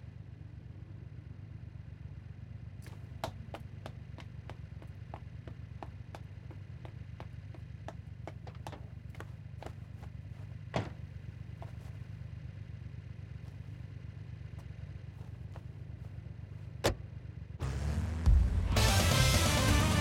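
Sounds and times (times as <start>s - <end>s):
sports car engines idling: 0.0s - 20.0s
car door shutting: 10.7s - 11.0s, 16.8s - 17.0s
short knock: 10.8s - 11.0s
music: 17.6s - 20.0s.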